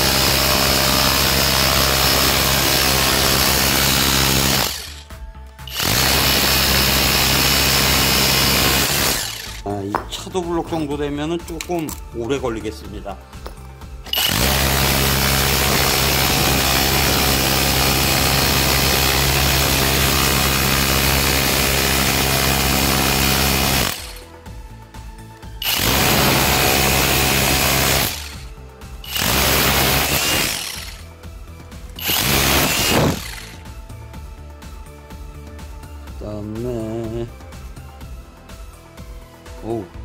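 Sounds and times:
hammer drill chiselling concrete: 0.0 - 9.8, 14.0 - 24.3, 25.6 - 31.1, 31.9 - 33.6.

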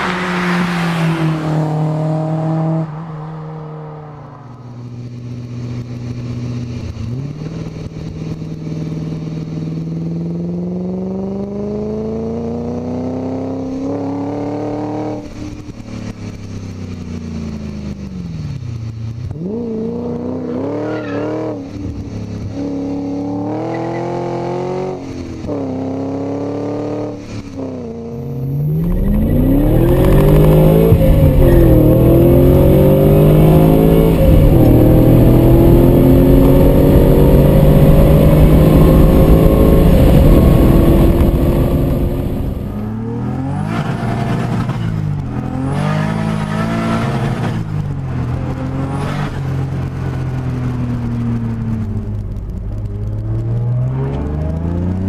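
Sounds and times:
car engine revving through gears: 0.0 - 4.2, 7.0 - 15.4, 19.2 - 55.0.

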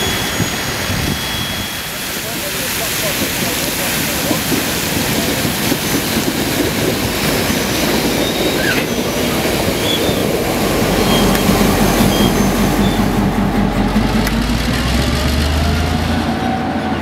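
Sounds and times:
faint high wheel squeaks: 0.0 - 2.7, 7.4 - 13.2
spraying water hiss: 0.0 - 13.3
low diesel engine hum: 0.0 - 17.0
train rumble: 0.0 - 17.0.

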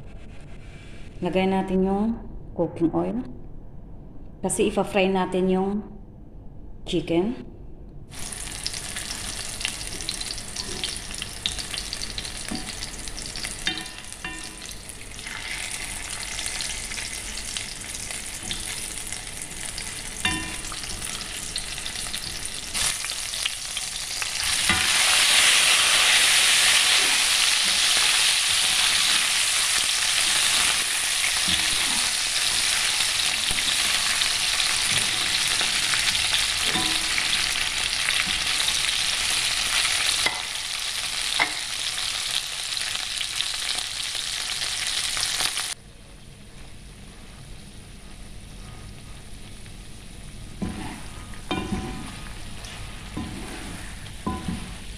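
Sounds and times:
chicken sizzling in oil: 8.1 - 45.8
spatula scraping and tapping pan: 12.4 - 14.8, 20.2 - 21.2, 36.6 - 37.4, 50.6 - 54.9.

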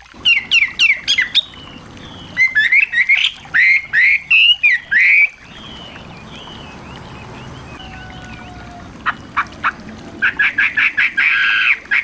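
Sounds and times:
small songbird singing: 0.3 - 9.5.

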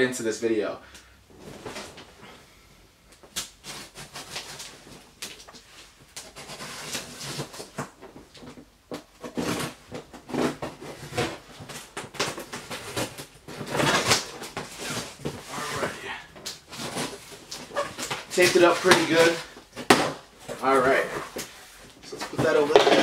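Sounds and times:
packing tape tearing: 9.2 - 23.0
cardboard rubbing and knocking: 16.7 - 23.0.

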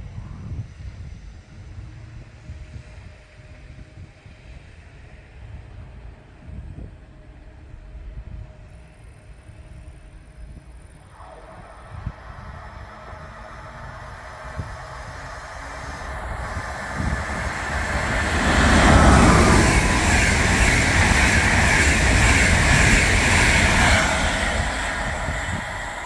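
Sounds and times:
passenger train passing: 1.6 - 26.0
wheel-on-rail noise: 11.1 - 26.0.

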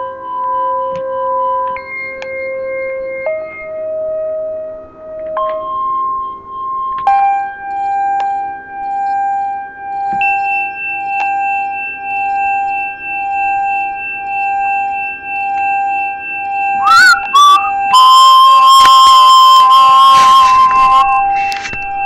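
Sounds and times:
warbling pitch slide: 16.8 - 22.0.

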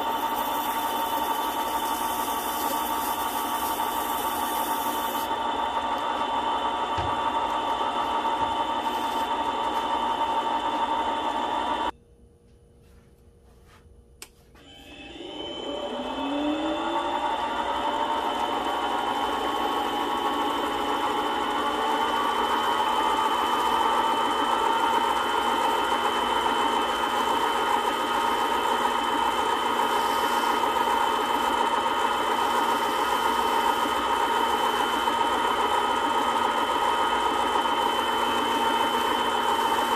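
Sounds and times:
ring being sanded: 0.0 - 5.3, 29.6 - 31.5
lathe motor whine: 0.0 - 11.9, 14.6 - 39.9.

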